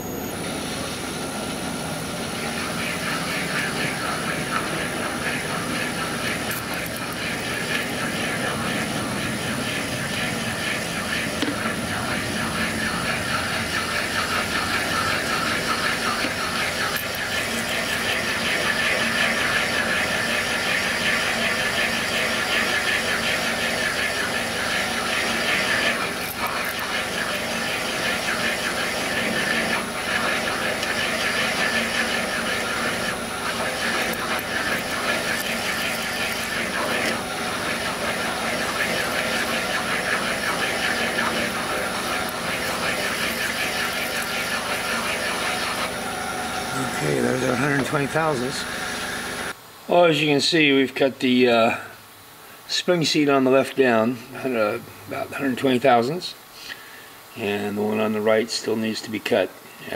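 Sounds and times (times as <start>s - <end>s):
low motor hum: 0.0s - 20.5s, 22.4s - 49.6s
machine spindle high whine: 0.0s - 49.6s
rhythmic cutter scraping: 1.8s - 49.6s.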